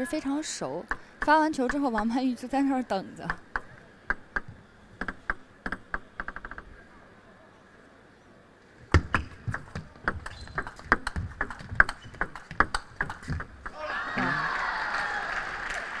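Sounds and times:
table tennis rally: 0.0 - 6.8, 8.9 - 16.0
table tennis ball bouncing: 0.8 - 2.3, 3.3 - 6.7, 8.9 - 13.8.

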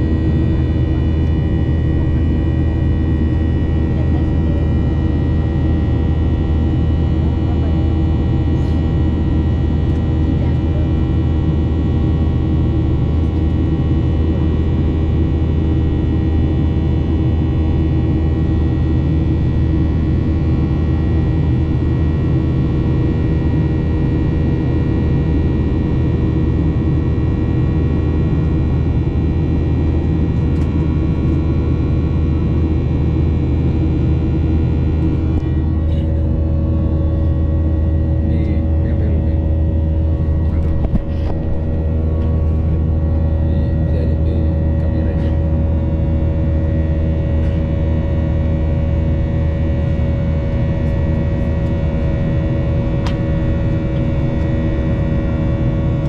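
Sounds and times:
airplane cabin engine drone: 0.0 - 56.0
steady whining tones: 32.5 - 56.0.

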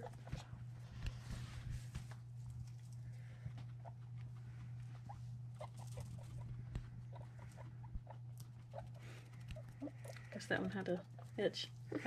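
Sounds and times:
steady low hum: 0.0 - 12.0
guinea pigs squeaking: 3.3 - 12.0.

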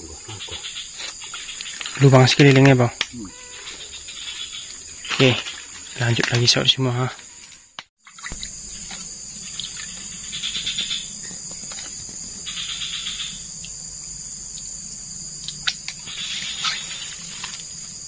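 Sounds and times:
insects chorus: 0.0 - 18.0
sharp clicks: 2.5 - 3.2
buzzing trill: 3.1 - 4.7.

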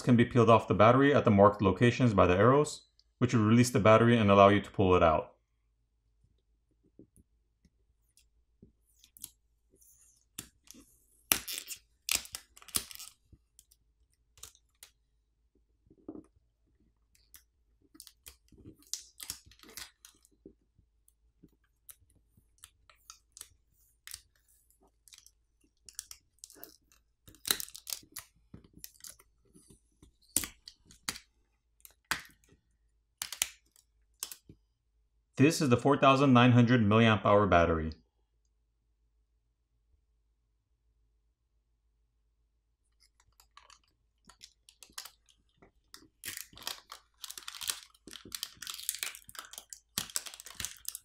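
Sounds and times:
adhesive tabs peeling with crackling: 10.4 - 15.0, 17.2 - 20.4, 21.7 - 29.3, 43.0 - 51.0.

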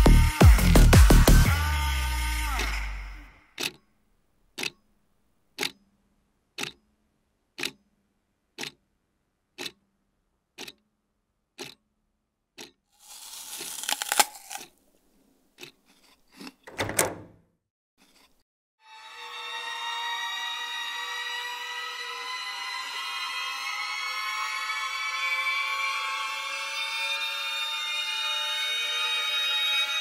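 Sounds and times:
clock ticking: 3.6 - 3.8, 4.6 - 4.8, 5.6 - 6.0, 6.6 - 6.9, 7.5 - 7.9, 8.5 - 8.9, 9.5 - 9.9, 10.5 - 10.9, 11.6 - 11.9, 12.5 - 12.8.

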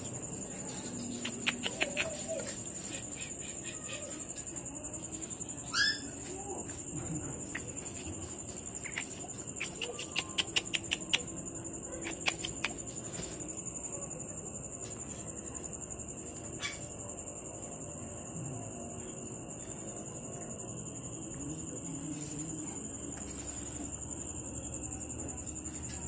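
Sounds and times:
insect trill: 0.0 - 26.0
puppy squeaking: 5.7 - 6.1.

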